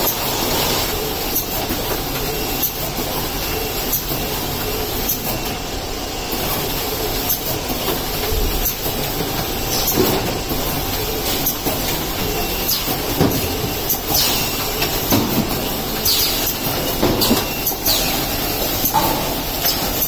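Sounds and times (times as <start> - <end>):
machine clatter: 6.4 - 20.0.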